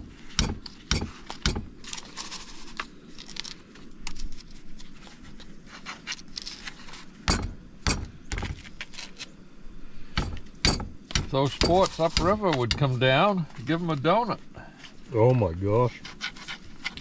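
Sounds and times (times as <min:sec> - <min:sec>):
sharp knocks: 0:07.3 - 0:08.6, 0:10.2 - 0:12.9.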